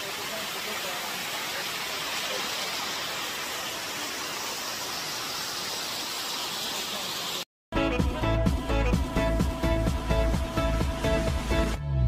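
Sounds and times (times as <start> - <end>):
waterfall rushing: 0.0 - 7.4.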